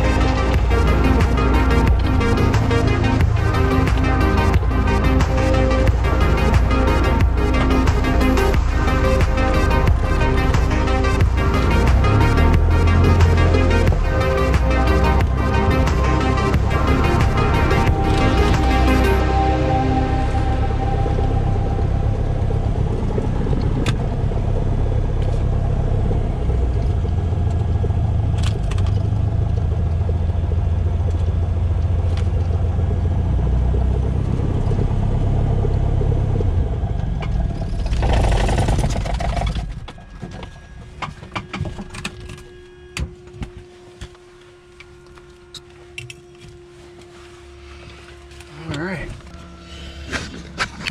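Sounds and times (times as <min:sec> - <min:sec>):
aircraft engine running: 0:00.0 - 0:50.9.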